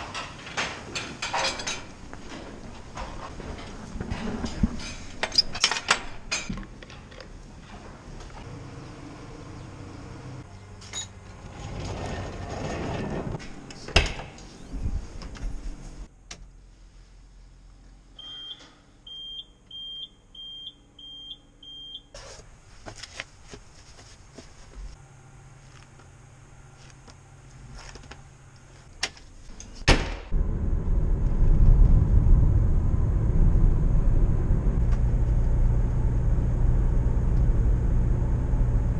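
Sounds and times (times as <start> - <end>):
clattering and knocks: 0.0 - 8.4.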